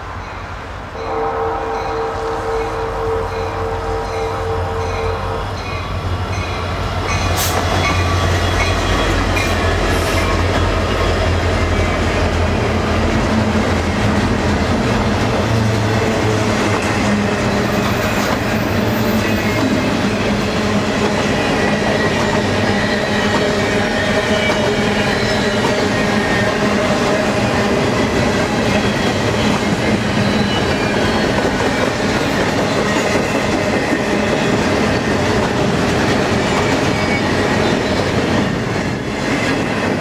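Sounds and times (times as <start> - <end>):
diesel locomotive engine drone: 0.0 - 40.0.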